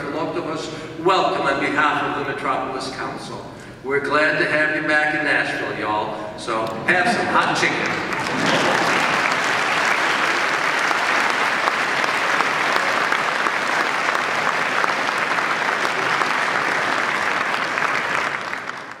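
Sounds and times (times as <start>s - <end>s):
audience applauding: 7.4s - 19.0s.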